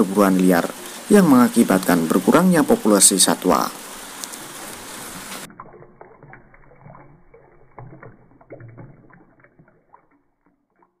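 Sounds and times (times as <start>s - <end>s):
running water hiss: 0.0s - 5.5s
small splashes and drips: 3.9s - 11.0s.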